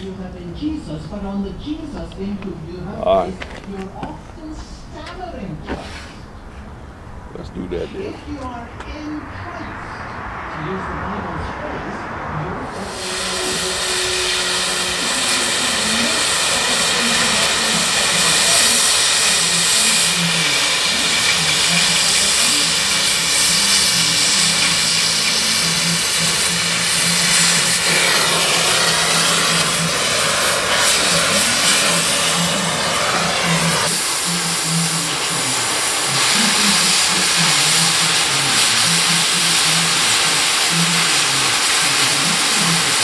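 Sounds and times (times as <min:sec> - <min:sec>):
cutting torch hissing: 0:09.6 - 0:43.0.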